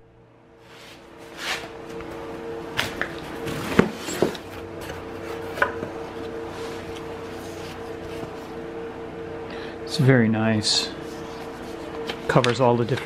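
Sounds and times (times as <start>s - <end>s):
low hum: 0.0s - 13.0s
paper rustling: 11.0s - 13.0s.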